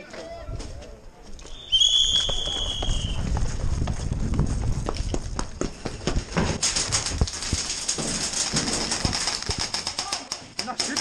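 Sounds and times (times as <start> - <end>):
footsteps on concrete: 0.0 - 8.1
wind rumble on microphone: 2.4 - 7.7.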